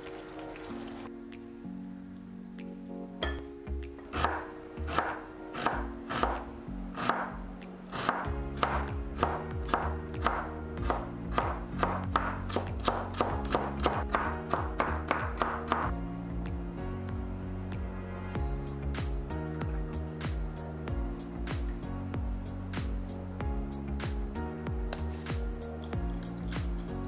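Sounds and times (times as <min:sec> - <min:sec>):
background music: 0:00.0 - 0:27.0
knife chopping on wooden board: 0:04.1 - 0:06.4, 0:07.0 - 0:07.3, 0:07.9 - 0:15.9.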